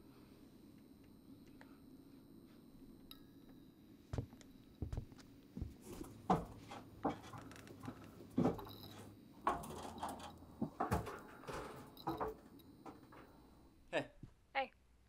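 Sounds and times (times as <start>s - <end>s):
footsteps on plywood floorboards: 4.1s - 7.2s.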